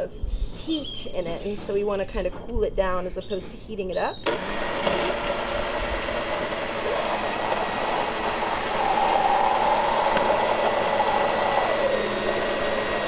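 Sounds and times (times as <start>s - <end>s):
electric blender motor drone: 4.3s - 13.0s.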